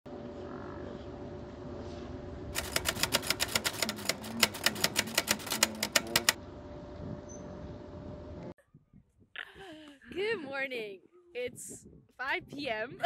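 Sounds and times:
typewriter key clicks: 2.6 - 6.4.

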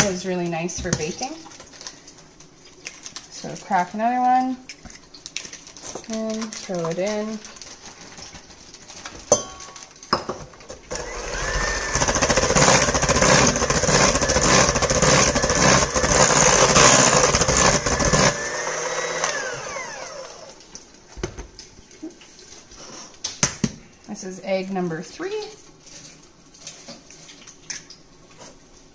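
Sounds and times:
electric hand mixer whining: 10.9 - 20.6.

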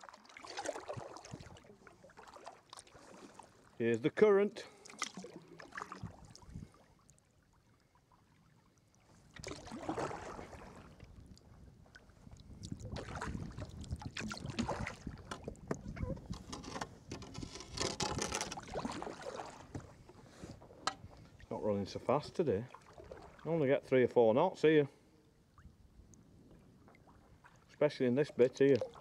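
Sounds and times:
kayak paddle strokes: 0.0 - 3.8, 9.0 - 11.1, 11.9 - 21.6
water rushing along hull: 0.0 - 24.4, 26.8 - 29.0.

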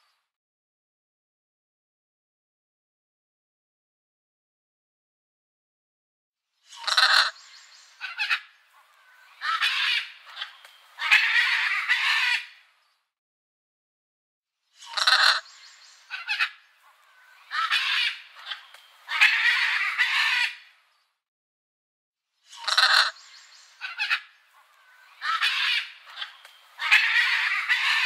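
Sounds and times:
parrots squawking: 6.8 - 7.4, 8.0 - 12.6, 14.9 - 20.7, 22.6 - 28.0.

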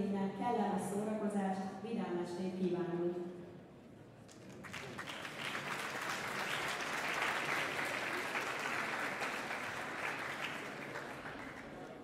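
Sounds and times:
large audience applauding: 4.3 - 12.0.

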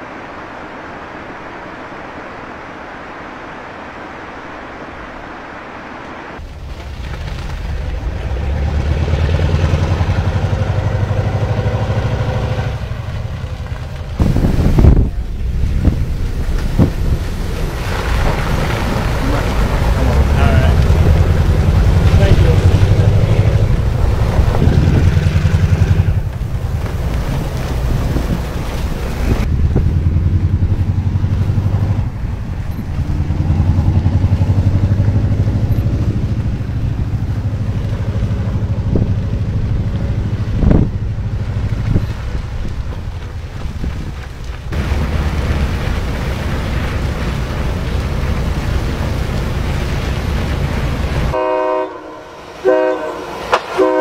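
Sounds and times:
vehicles ploughing through snow: 0.0 - 54.0
heavy vehicle engine rumble: 6.4 - 54.0
loud multi-tone horn: 51.3 - 54.0.

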